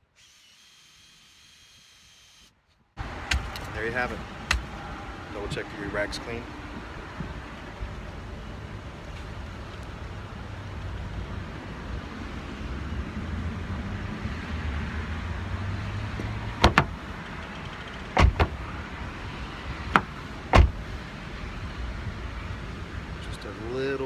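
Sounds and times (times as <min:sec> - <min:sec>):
car door handle clicks: 0:16.6 - 0:17.0, 0:18.2 - 0:18.6.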